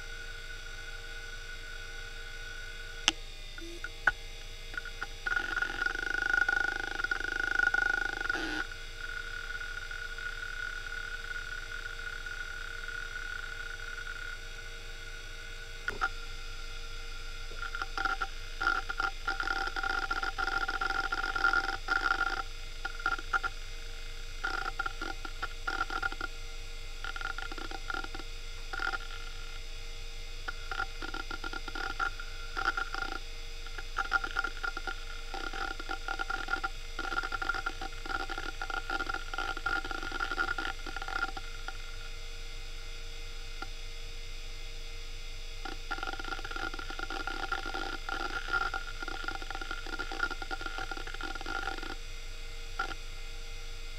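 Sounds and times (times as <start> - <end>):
hard drive whine and hum: 0.0 - 53.9
hard drive heads clicking: 3.6 - 8.6, 17.5 - 23.5, 24.4 - 26.3, 27.0 - 29.3, 30.5 - 41.8, 45.6 - 52.0.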